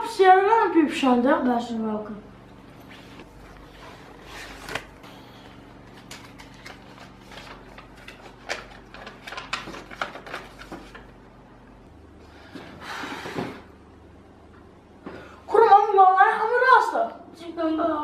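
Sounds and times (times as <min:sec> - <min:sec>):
faint steady hum: 0:00.0 - 0:18.0
paper rustling and crinkling: 0:05.8 - 0:11.2.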